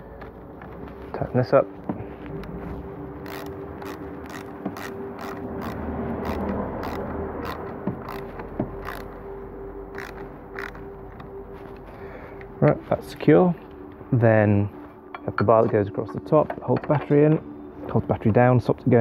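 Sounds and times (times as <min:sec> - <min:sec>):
ratchet wrench clicking: 0:03.2 - 0:09.1, 0:09.9 - 0:10.8.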